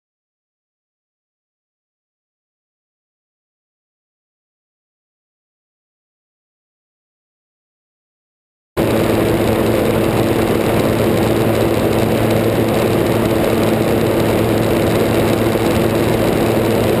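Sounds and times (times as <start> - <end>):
aircraft engine and propeller drone: 8.8 - 17.0
wind rushing over microphone: 8.8 - 17.0.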